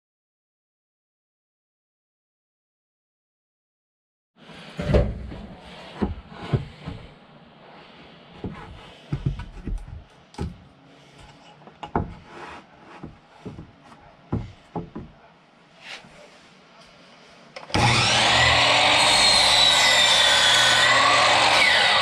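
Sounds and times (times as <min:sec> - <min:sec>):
board scraping: 0:04.4 - 0:10.1, 0:11.0 - 0:15.1
wooden board knocks and clunks: 0:04.8 - 0:07.0, 0:08.4 - 0:10.6, 0:11.8 - 0:12.2, 0:12.9 - 0:15.2.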